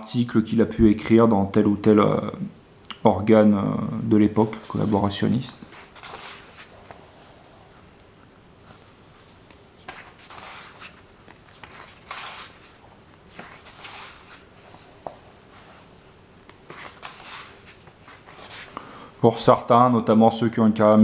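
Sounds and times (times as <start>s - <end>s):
book pages turning: 4.5s - 7.2s, 8.7s - 15.8s, 16.4s - 18.8s.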